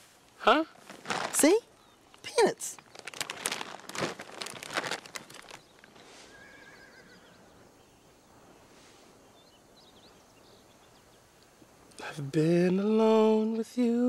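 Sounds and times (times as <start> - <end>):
plastic bag crinkling: 0.8 - 6.0.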